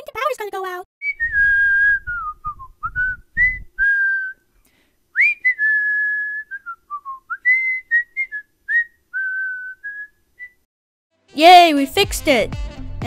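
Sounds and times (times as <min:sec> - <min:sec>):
person whistling a tune: 0:01.0 - 0:04.4, 0:05.2 - 0:10.7.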